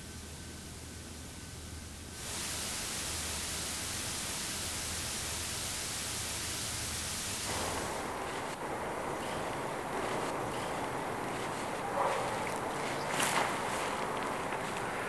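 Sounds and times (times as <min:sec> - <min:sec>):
television static hiss: 0:00.0 - 0:15.0
dull rushing noise: 0:07.0 - 0:15.0.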